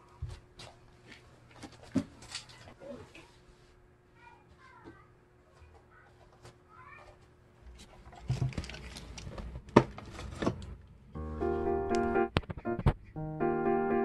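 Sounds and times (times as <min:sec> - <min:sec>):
gentle piano music: 0:11.2 - 0:14.0.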